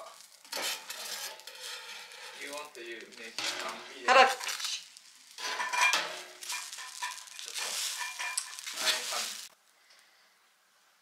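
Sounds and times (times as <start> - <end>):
frying sizzle: 0.0 - 9.6
metal spatula scraping steel plate: 0.4 - 2.6, 3.4 - 4.1, 5.4 - 9.3.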